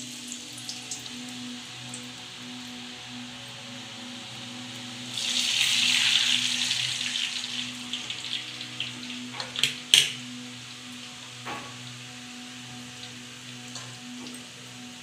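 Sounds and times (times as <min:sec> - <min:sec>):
dough sizzling in hot oil: 0:00.0 - 0:15.0.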